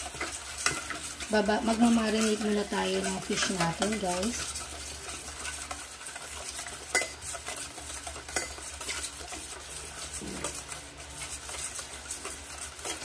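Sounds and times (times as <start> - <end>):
liquid swishing: 0.0 - 13.0
spoon clinking against metal bowl: 6.9 - 7.4, 8.0 - 9.0.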